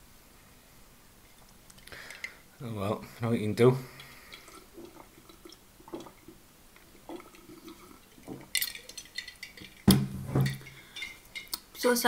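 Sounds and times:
person sipping drink: 1.3s - 2.5s, 3.2s - 9.8s, 10.4s - 11.6s
ice clinking against glass: 7.1s - 11.6s.

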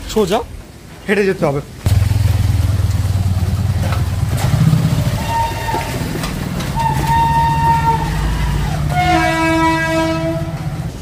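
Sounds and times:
motorcycle engine passing: 1.9s - 8.9s.

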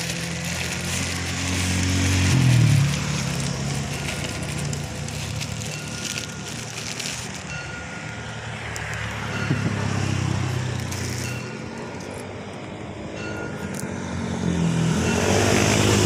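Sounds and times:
plastic bag rustling: 0.0s - 12.2s
road traffic engine hum: 0.0s - 16.0s.

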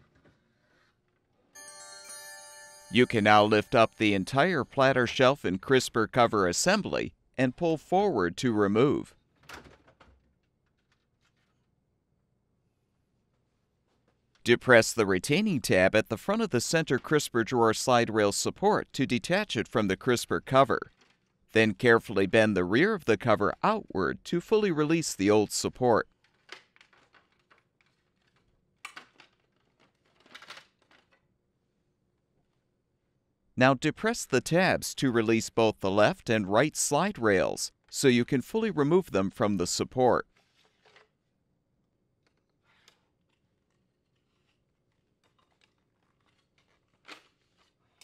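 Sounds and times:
plastic parts clicking and rattling: 20.9s - 21.4s, 26.1s - 31.3s, 42.2s - 48.0s.

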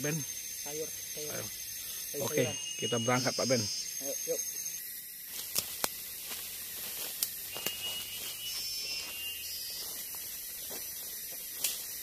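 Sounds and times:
insects hissing: 0.0s - 12.0s
high whistling tone: 2.1s - 4.8s, 7.5s - 10.1s.

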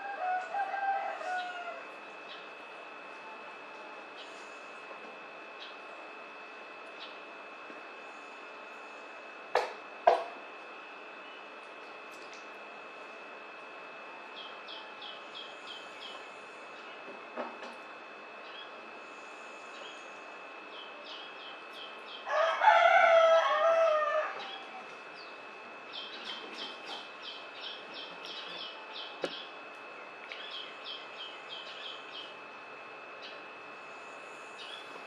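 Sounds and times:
rooster crowing: 0.0s - 2.0s, 22.2s - 24.9s
small birds chirping: 30.3s - 32.4s.

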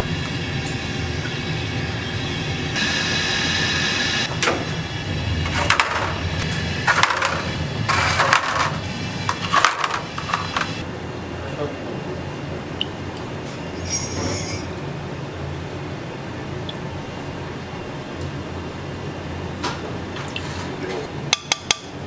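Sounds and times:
low kitchen rumble: 0.0s - 22.0s.

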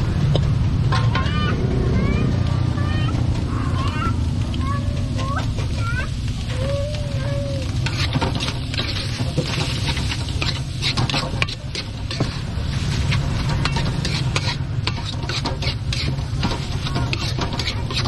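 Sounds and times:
metal spatula scraping a wok: 7.6s - 18.0s.

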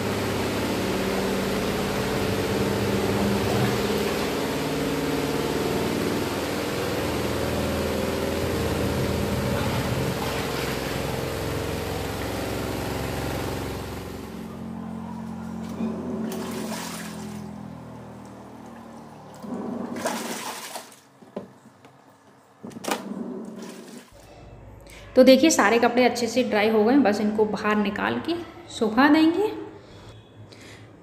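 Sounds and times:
rushing water noise: 0.0s - 14.2s
washing machine motor hum: 0.0s - 24.7s.

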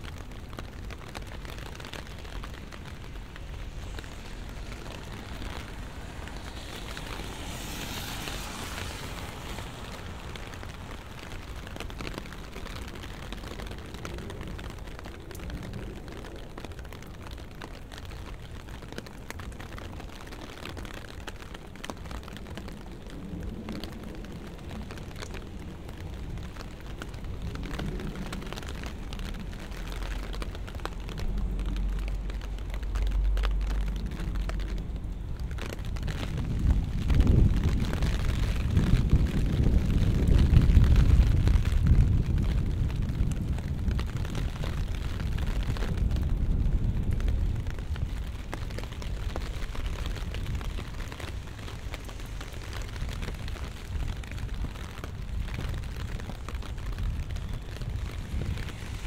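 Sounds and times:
rain dripping on a street: 0.0s - 59.0s
low rumble: 22.4s - 59.0s.

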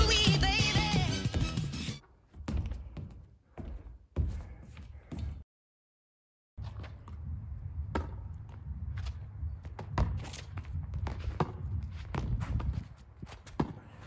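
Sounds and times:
scuffing footsteps: 2.0s - 5.4s, 8.5s - 14.0s
basketball thumping and bouncing: 6.6s - 8.6s, 9.6s - 14.0s.

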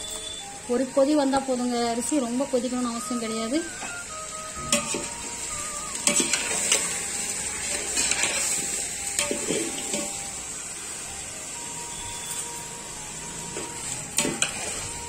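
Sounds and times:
steady hiss: 0.0s - 15.0s
metal utensil scraping a pot: 4.7s - 5.1s, 6.0s - 10.2s, 14.2s - 14.8s.

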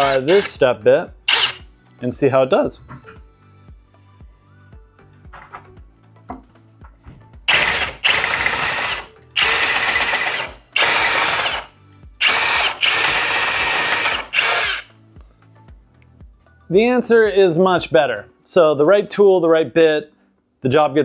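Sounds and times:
cordless drill whining through metal: 0.0s - 0.6s, 1.3s - 1.7s, 7.5s - 14.9s.

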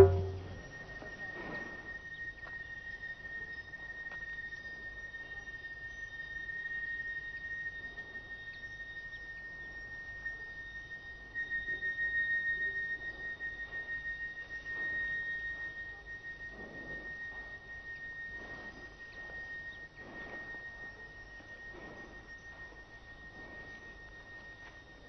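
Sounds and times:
soft low swells: 0.0s - 1.9s, 12.6s - 25.0s
steady high-pitched tone: 0.0s - 25.0s.

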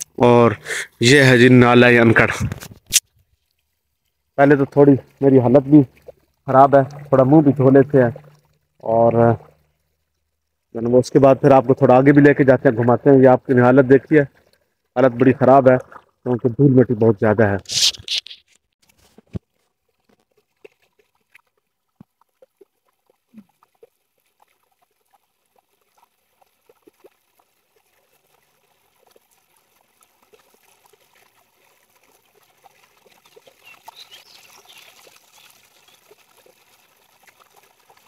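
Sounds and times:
hands splashing stream water: 17.7s - 38.0s.

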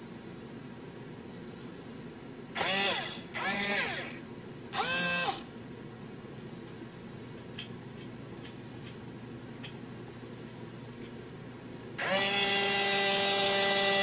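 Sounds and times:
toy robot servos whirring: 2.6s - 4.2s, 4.8s - 5.5s, 12.0s - 14.0s.

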